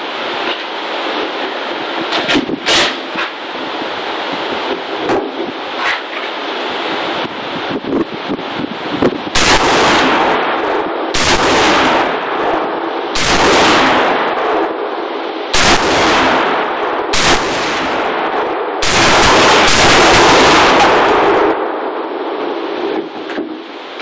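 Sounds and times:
rifle shots with echo: 0:02.7 - 0:03.2, 0:09.4 - 0:22.0.

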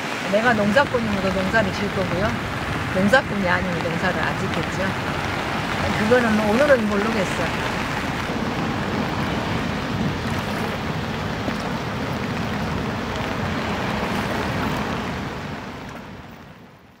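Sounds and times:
floodwater rushing: 0:00.0 - 0:17.0
rain: 0:00.0 - 0:17.0
wind: 0:00.0 - 0:17.0.

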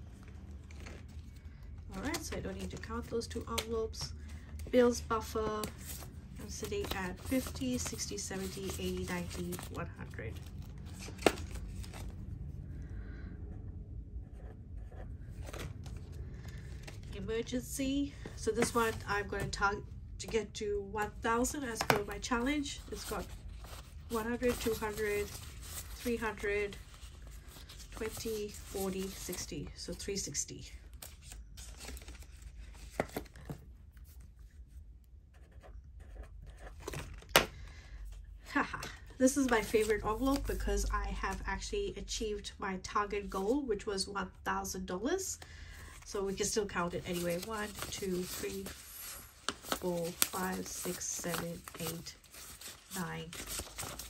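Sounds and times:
paper and banknotes rustling: 0:00.1 - 0:12.2, 0:17.9 - 0:19.6, 0:21.3 - 0:30.1, 0:30.9 - 0:34.5, 0:38.8 - 0:41.4, 0:45.8 - 0:54.0.

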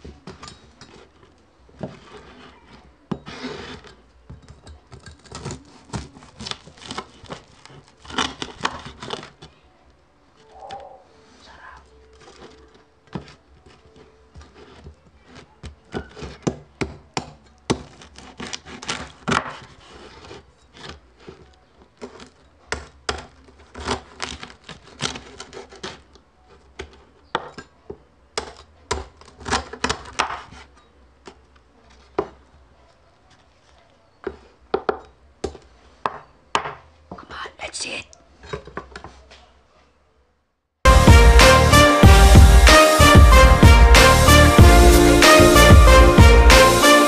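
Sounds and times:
crispy pork skin crunching: 0:05.2 - 0:09.6.

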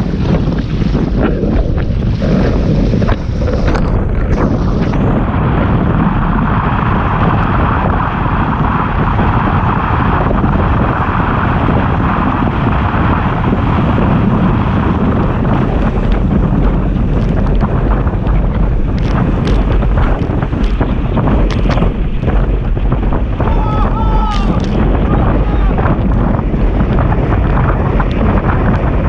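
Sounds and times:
water rushing under a board: 0:00.0 - 0:29.0
wind buffeting microphone: 0:00.0 - 0:29.0.

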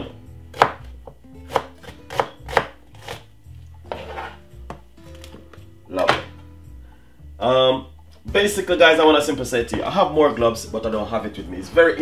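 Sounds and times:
knife chopping on cutting board: 0:00.5 - 0:06.4.

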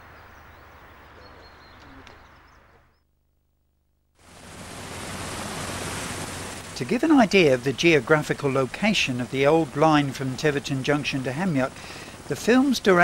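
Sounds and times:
faint bird calls: 0:00.0 - 0:03.1
faint outdoor ambience: 0:00.0 - 0:13.0
steady rushing noise: 0:04.2 - 0:13.0.

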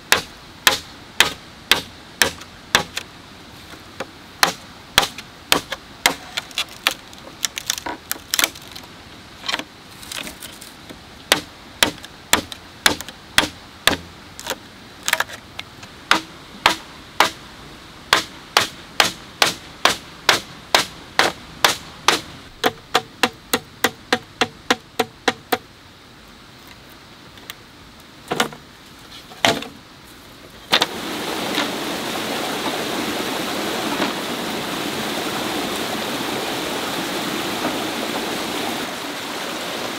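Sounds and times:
stream rushing over rocks: 0:00.0 - 0:39.9
machete chopping bamboo: 0:00.1 - 0:03.1, 0:04.0 - 0:08.7, 0:11.3 - 0:15.3, 0:16.1 - 0:17.4, 0:18.1 - 0:25.6, 0:29.4 - 0:29.7.

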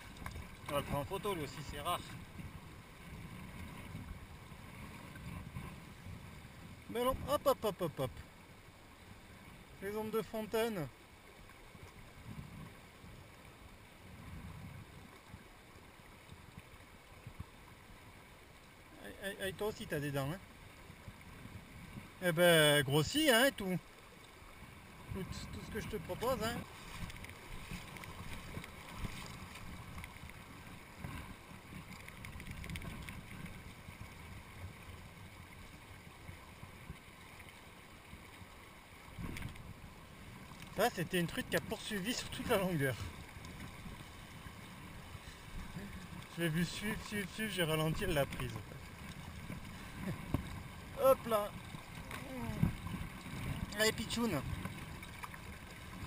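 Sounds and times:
wind rumbling on microphone: 0:00.0 - 0:08.2, 0:11.8 - 0:15.5, 0:24.6 - 0:37.3, 0:38.0 - 0:56.0
water rushing over stones: 0:00.0 - 0:08.3, 0:21.3 - 0:56.0
mountain torrent rushing: 0:49.6 - 0:52.8.

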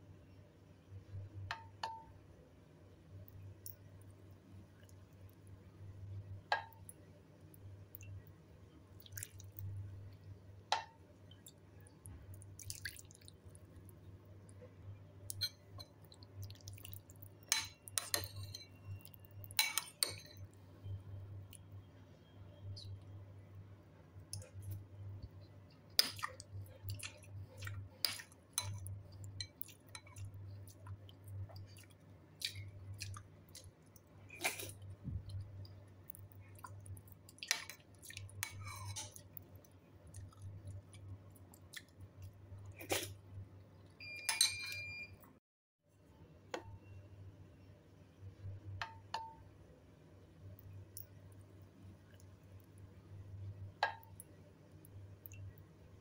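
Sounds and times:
low steady hum: 0:00.0 - 0:56.0
chewing and mouth noises: 0:15.3 - 0:17.4, 0:25.7 - 0:44.0
spoon clinking against dish: 0:19.5 - 0:20.4, 0:44.2 - 0:45.0.

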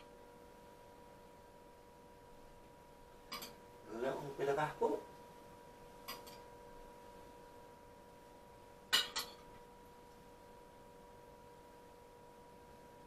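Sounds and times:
faint steady hum: 0:00.0 - 0:13.0
spoon clinking on ceramic dish: 0:03.3 - 0:03.6, 0:06.0 - 0:06.4, 0:08.9 - 0:09.5.

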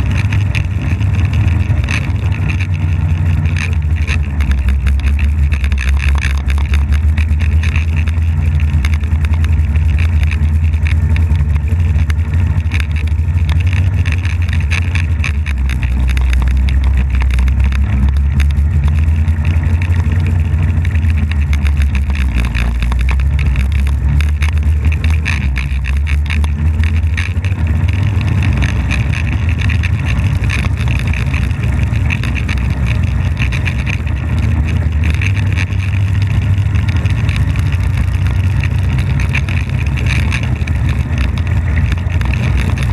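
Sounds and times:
snowmobile engine running: 0:00.0 - 0:42.9.

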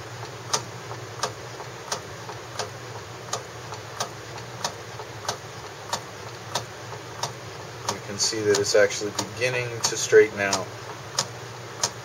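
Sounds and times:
microtome clicking: 0:00.5 - 0:12.0.

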